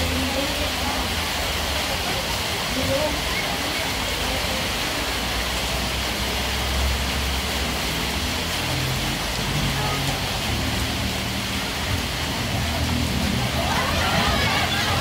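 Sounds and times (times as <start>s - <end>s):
rain falling: 0.0s - 15.0s
faint distant voices: 12.8s - 15.0s.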